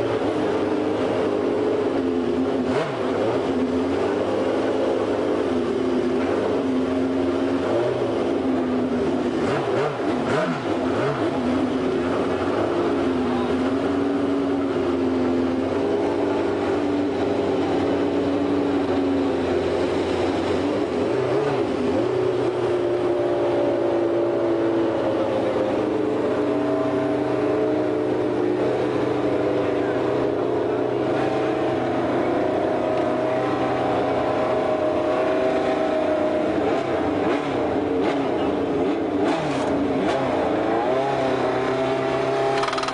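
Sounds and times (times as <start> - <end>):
race car engine idling: 10.0 - 23.1, 24.5 - 40.0.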